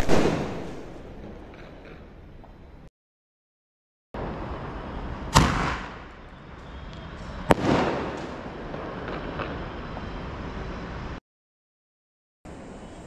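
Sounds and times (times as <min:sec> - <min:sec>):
firework bangs: 0:00.0 - 0:01.8, 0:04.2 - 0:10.5.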